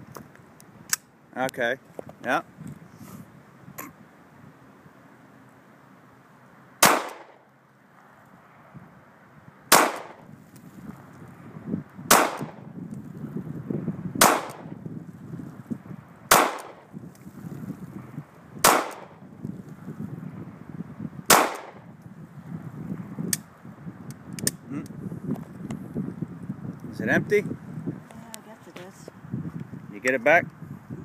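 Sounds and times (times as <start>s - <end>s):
pistol shots: 6.8s - 7.4s, 9.7s - 10.2s, 12.1s - 12.6s, 14.2s - 14.7s, 16.3s - 16.8s, 18.6s - 19.2s, 21.3s - 21.8s.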